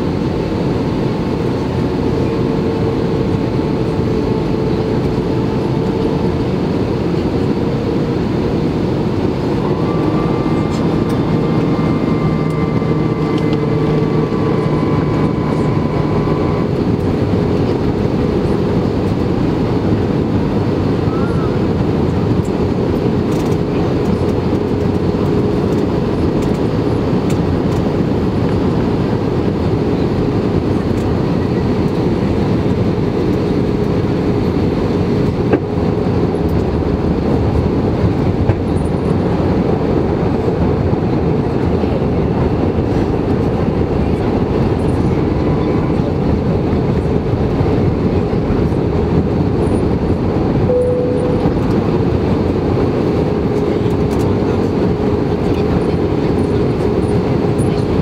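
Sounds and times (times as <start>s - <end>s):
aircraft cabin engine roar: 0.0s - 58.0s
steady low hum: 0.0s - 58.0s.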